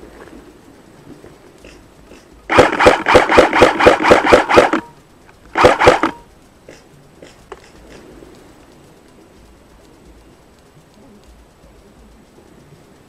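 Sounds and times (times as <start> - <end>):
airsoft rifle shots: 2.5 - 4.9, 5.5 - 6.2.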